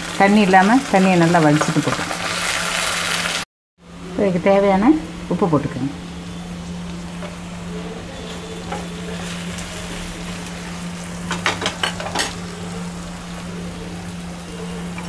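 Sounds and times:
plantain frying in oil: 0.0 - 3.4, 6.6 - 15.0.

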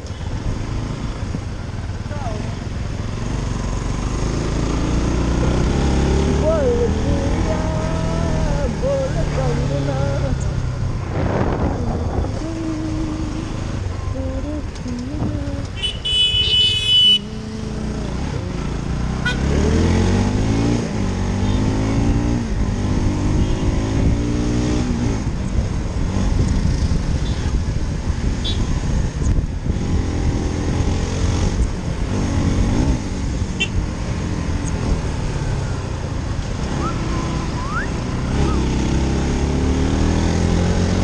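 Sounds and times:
motorcycle engine accelerating: 0.1 - 15.7, 17.2 - 41.0
vehicle horn honk: 15.8 - 17.4, 19.2 - 19.5, 33.6 - 33.8.

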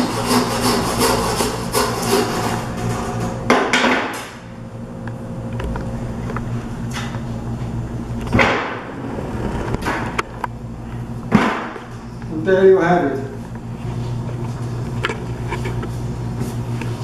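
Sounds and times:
hand saw cutting bone: 0.0 - 2.6
low steady hum: 0.0 - 17.0.

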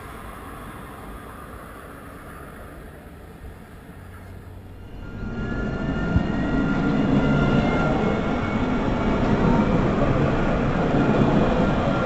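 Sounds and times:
tram wheels rumbling on rail: 0.0 - 12.0
electric motor whine: 4.2 - 10.5.

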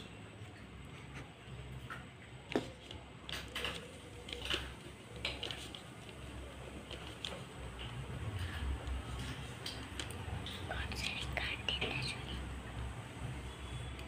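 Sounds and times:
low background hum: 0.0 - 14.0
paper handling: 2.5 - 10.1.

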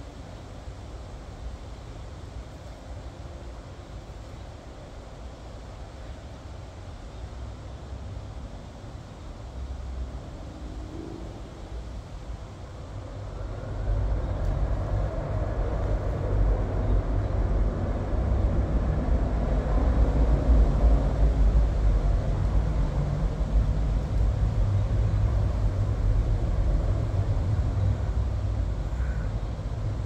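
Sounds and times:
vehicle engine rumble: 7.8 - 30.0.

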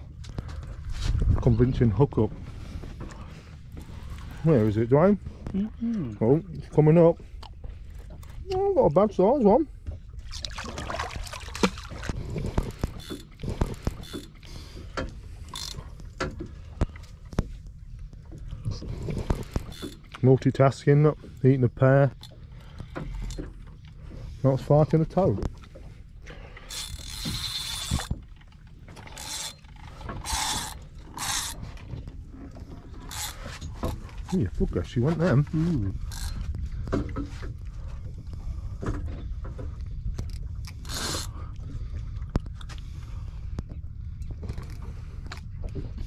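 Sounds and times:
wind rumbling on microphone: 0.8 - 5.8
water splashing against boat: 6.2 - 46.0
fishing reel rasping: 12.6 - 14.4, 15.5 - 15.9, 19.3 - 20.1, 26.7 - 28.2, 29.0 - 31.7, 33.0 - 33.6, 36.0 - 36.4, 40.7 - 41.4.

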